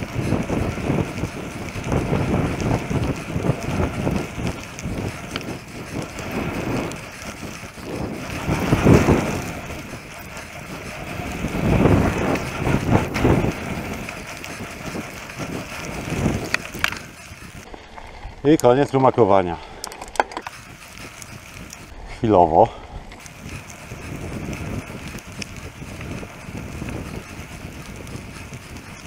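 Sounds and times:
bike tyres rattling over gravel: 0.0s - 29.0s
wind rushing over microphone: 0.0s - 29.0s.

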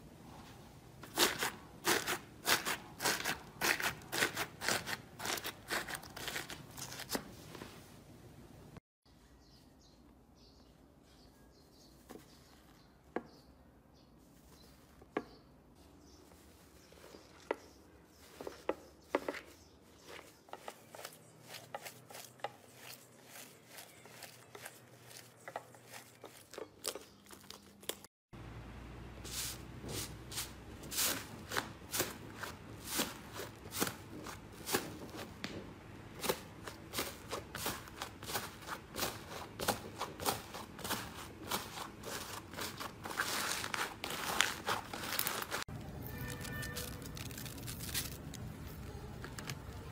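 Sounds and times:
slime crackling and popping: 46.3s - 48.4s.

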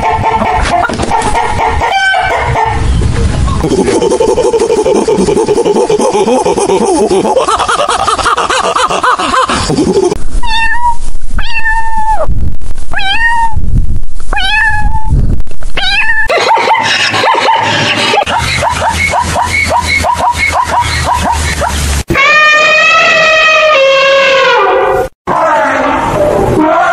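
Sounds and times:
kitten meowing: 10.4s - 12.3s, 12.9s - 13.6s, 14.3s - 15.1s, 15.8s - 16.3s.

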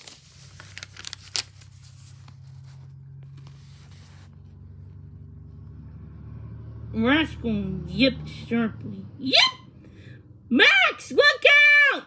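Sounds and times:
paper page rustling: 0.0s - 4.6s.

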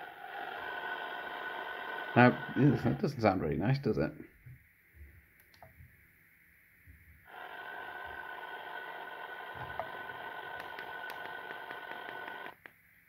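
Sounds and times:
faint steady tones: 0.0s - 13.0s
radio static hiss: 2.0s - 4.3s, 7.3s - 12.6s.

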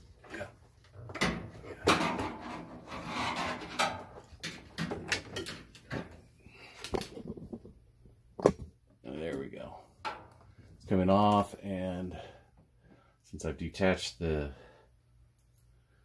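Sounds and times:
scraping and rubbing on rubber: 2.4s - 3.9s.

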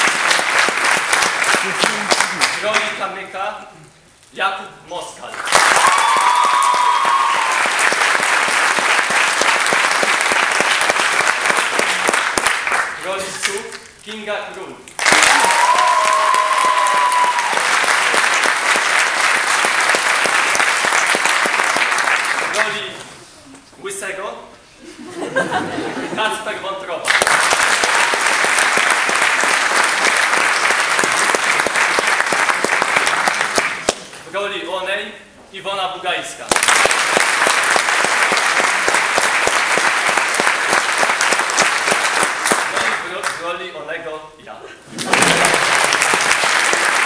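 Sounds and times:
audience applauding: 0.0s - 3.0s, 5.4s - 13.2s, 15.0s - 23.1s, 27.1s - 34.1s, 36.5s - 43.4s, 44.9s - 47.0s.

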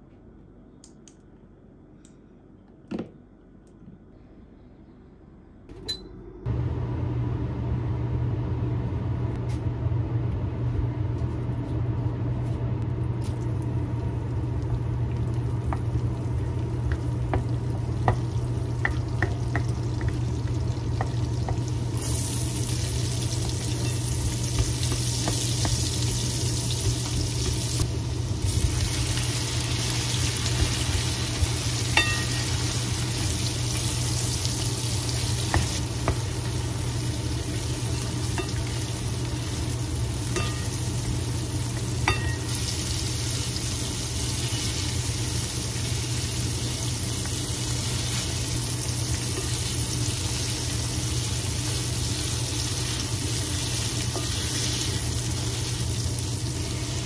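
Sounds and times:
low hum: 0.0s - 57.0s
food sizzling in a frying pan: 15.1s - 57.0s.

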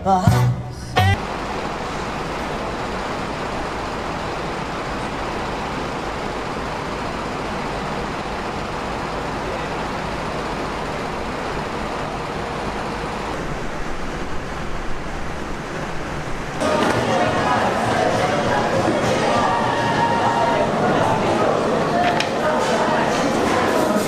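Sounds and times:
steady rushing noise: 1.2s - 24.0s.

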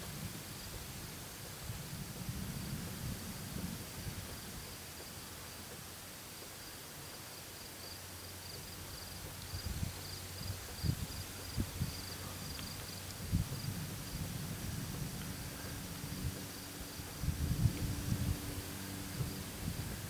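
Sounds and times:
night insects chirping: 6.0s - 20.0s.

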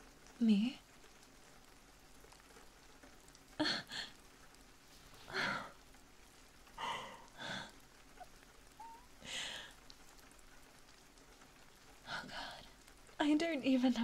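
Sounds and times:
woman breathing: 5.2s - 5.8s, 6.8s - 7.8s, 8.8s - 9.8s.

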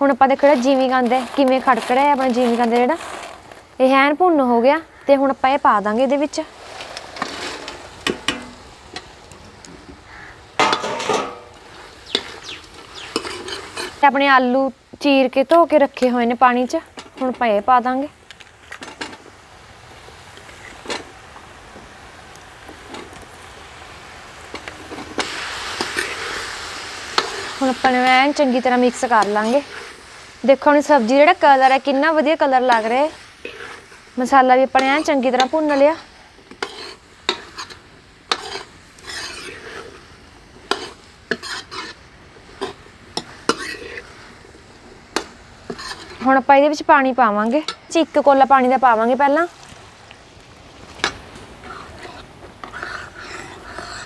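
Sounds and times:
loud sizzle in hot oil: 0.0s - 54.0s
metal ladle scraping pan: 0.2s - 3.5s, 6.6s - 9.1s, 10.1s - 14.1s, 24.5s - 30.2s, 30.8s - 44.3s, 45.1s - 46.4s, 51.0s - 54.0s
plate and ladle clinking: 10.6s - 12.3s.

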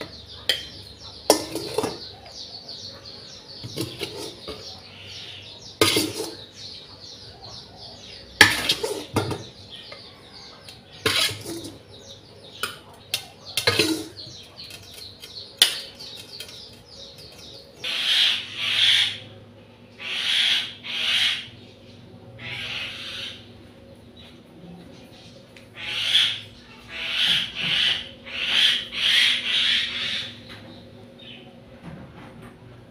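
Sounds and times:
birds chirping faintly: 0.0s - 32.9s
spoon scraping rasps: 3.6s - 4.7s, 5.8s - 6.5s, 11.0s - 11.8s, 13.6s - 17.4s.

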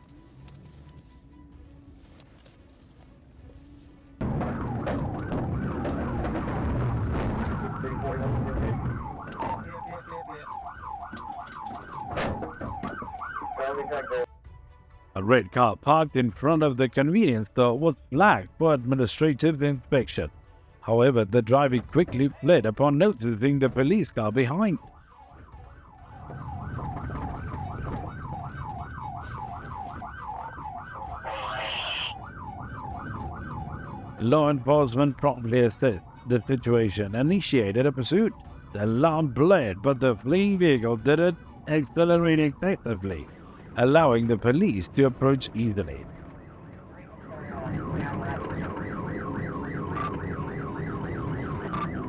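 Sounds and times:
engine and road rumble: 0.0s - 15.1s, 21.6s - 52.0s
police siren yelping: 4.2s - 14.3s, 24.6s - 34.3s, 37.8s - 44.0s, 45.0s - 52.0s
car engine and road rumble: 42.5s - 52.0s.

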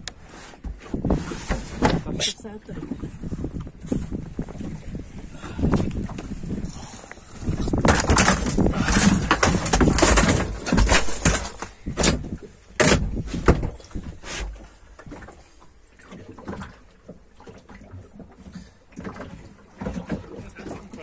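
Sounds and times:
knocks and thumps on boat deck: 0.0s - 21.0s
handling noise: 7.7s - 13.8s.

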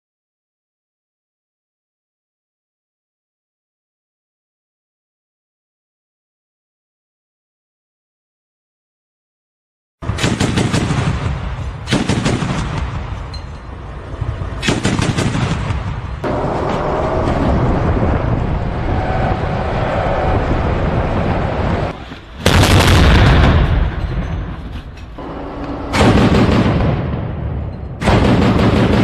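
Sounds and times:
autocannon firing: 10.0s - 13.0s, 14.6s - 16.0s, 25.9s - 27.4s, 28.0s - 29.0s
rattle of gunshots: 10.0s - 13.1s, 14.6s - 16.0s, 22.4s - 24.6s, 25.2s - 27.4s, 28.0s - 29.0s.

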